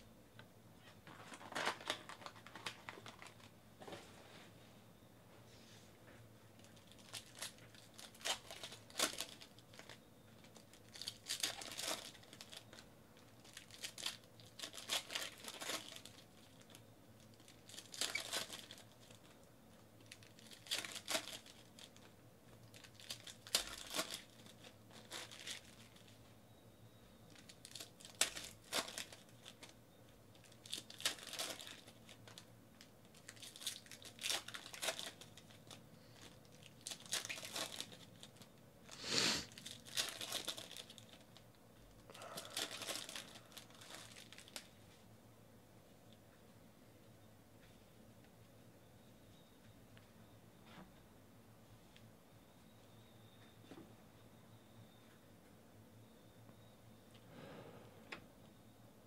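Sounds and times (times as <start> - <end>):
foil wrappers crinkling and tearing: 1.0 - 3.5, 6.6 - 26.2, 27.3 - 41.4, 42.1 - 44.8.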